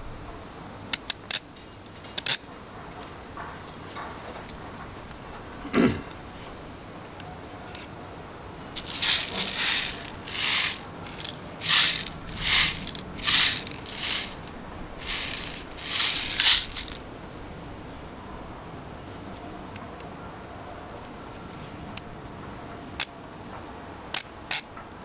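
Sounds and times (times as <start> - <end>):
plastic pellets rattling: 8.8 - 17.0.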